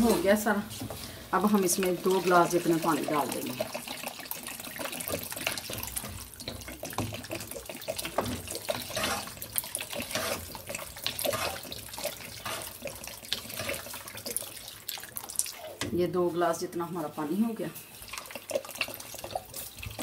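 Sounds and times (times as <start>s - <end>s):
water pouring into a pan: 1.4s - 15.9s, 17.9s - 20.0s
metal spoon stirring: 4.9s - 14.4s.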